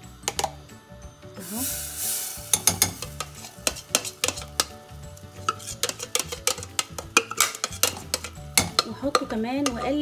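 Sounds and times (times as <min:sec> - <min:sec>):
metal spoon scraping saucepan: 0:02.5 - 0:10.0.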